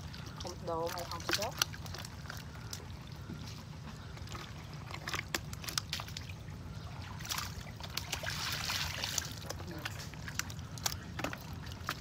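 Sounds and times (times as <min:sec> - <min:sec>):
light water splashes: 0:00.0 - 0:12.0
low steady rumble: 0:00.0 - 0:12.0
water sloshing and trickling: 0:00.0 - 0:12.0.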